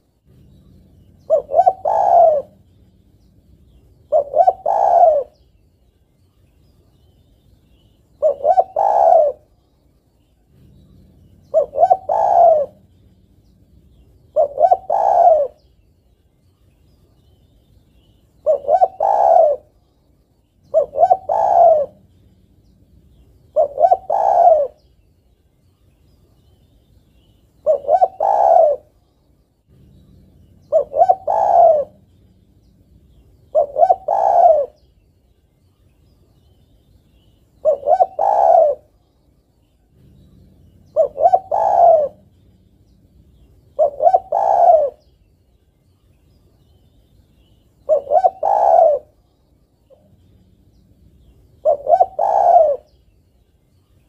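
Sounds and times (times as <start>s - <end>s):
dove cooing: 0.0s - 5.6s, 8.1s - 9.6s, 10.4s - 15.8s, 18.0s - 19.8s, 20.6s - 25.0s, 27.2s - 29.0s, 29.7s - 35.0s, 37.1s - 39.1s, 39.8s - 45.3s, 46.6s - 53.2s.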